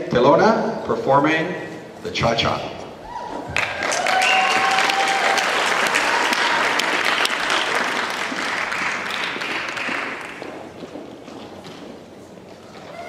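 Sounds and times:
audience applauding: 0:03.5 - 0:10.4.

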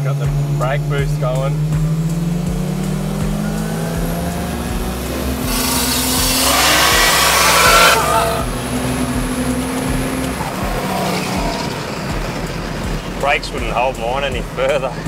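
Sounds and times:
car engine accelerating hard: 0:00.0 - 0:15.0
loud rushing noise: 0:01.5 - 0:13.2.

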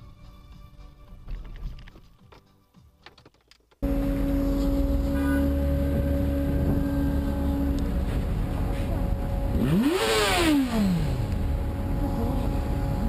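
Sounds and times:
vehicle engine revving: 0:03.8 - 0:13.0.

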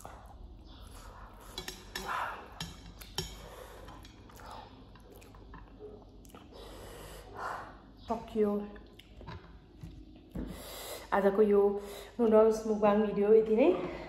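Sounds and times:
chewing: 0:00.0 - 0:06.9, 0:08.8 - 0:10.3.

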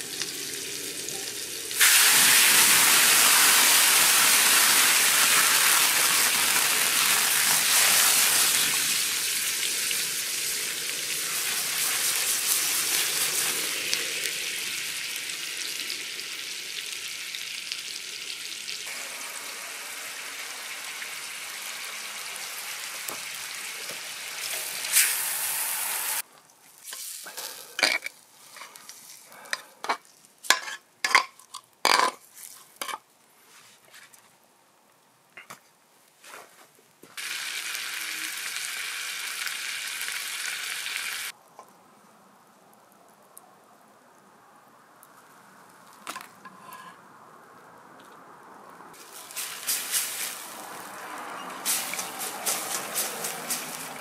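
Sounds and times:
food sizzling over fire: 0:00.0 - 0:29.4, 0:37.1 - 0:41.4, 0:48.9 - 0:54.0.

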